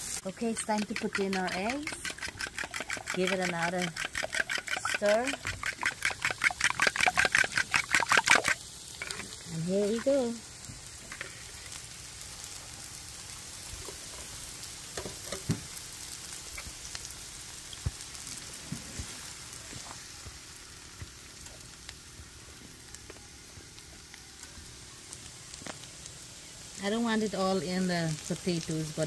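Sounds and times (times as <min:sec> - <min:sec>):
food sizzling in a skillet: 0:00.0 - 0:29.0
fork scraping a bowl: 0:00.6 - 0:08.5
eggs being poured: 0:00.7 - 0:09.4.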